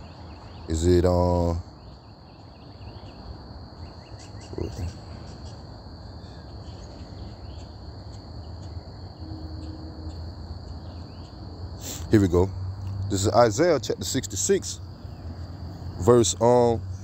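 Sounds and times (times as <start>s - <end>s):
insects chirring: 0.0s - 17.0s
low hum: 8.7s - 11.7s.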